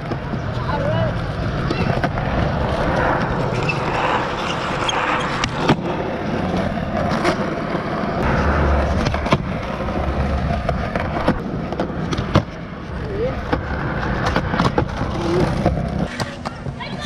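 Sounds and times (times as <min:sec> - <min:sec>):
skateboard clacking on ground: 0:00.0 - 0:17.0
skateboard wheels rolling: 0:00.0 - 0:17.0.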